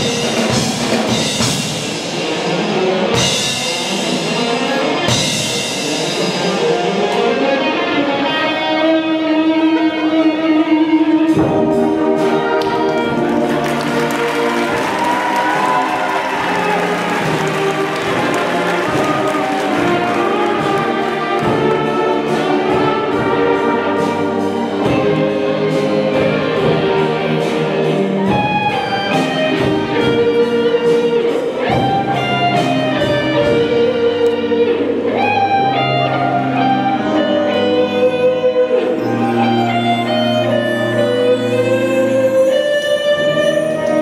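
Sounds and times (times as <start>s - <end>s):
drum beats: 0.0s - 6.6s, 11.3s - 35.0s
concert band playing: 0.0s - 44.0s.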